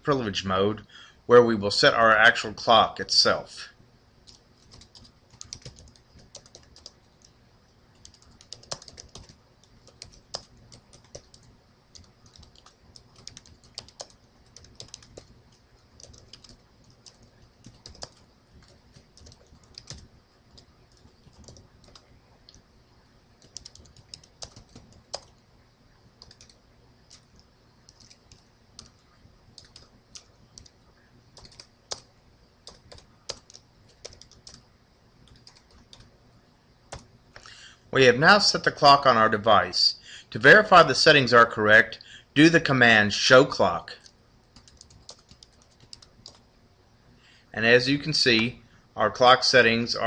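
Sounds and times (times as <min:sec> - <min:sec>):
typing on computer keyboard: 0:04.3 - 0:22.6, 0:23.4 - 0:25.4, 0:26.2 - 0:30.8, 0:31.4 - 0:34.6, 0:35.2 - 0:36.1, 0:36.9 - 0:37.5, 0:44.0 - 0:46.4.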